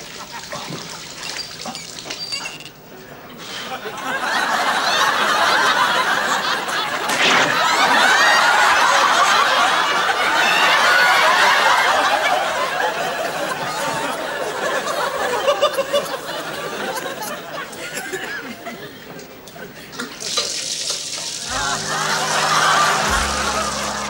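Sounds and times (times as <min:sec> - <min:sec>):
studio audience laughing: 0:03.5 - 0:19.0, 0:21.4 - 0:24.0.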